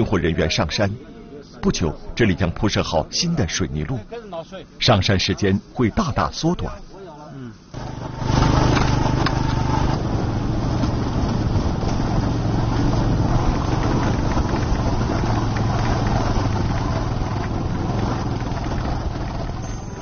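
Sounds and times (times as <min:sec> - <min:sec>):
road noise: 0:00.0 - 0:20.0
wind: 0:00.0 - 0:20.0
motorcycle engine running: 0:07.8 - 0:20.0.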